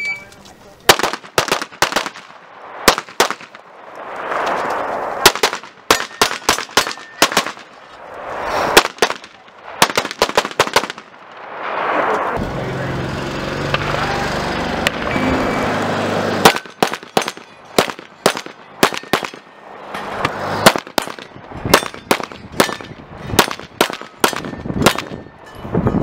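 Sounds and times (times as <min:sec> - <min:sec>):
pistol shots: 0:00.9 - 0:03.6, 0:05.2 - 0:07.7, 0:08.8 - 0:11.2, 0:16.4 - 0:19.5, 0:20.6 - 0:25.2.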